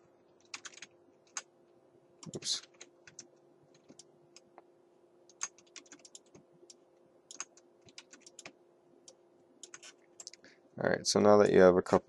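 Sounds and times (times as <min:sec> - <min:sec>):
faint steady hum: 0:00.0 - 0:12.0
keyboard and mouse clicks: 0:00.4 - 0:01.5, 0:02.2 - 0:04.5, 0:05.3 - 0:10.4.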